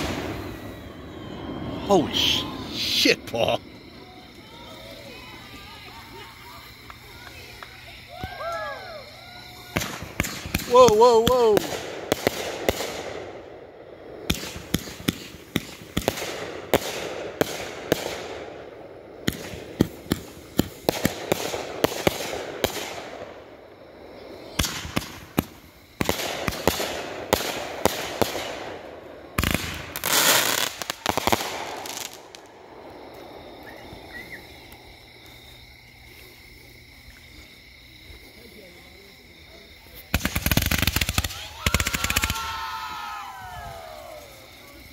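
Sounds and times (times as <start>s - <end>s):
fireworks launch thumps and bursts: 9.7s - 13.2s, 14.2s - 18.3s, 19.2s - 23.2s, 24.6s - 28.6s.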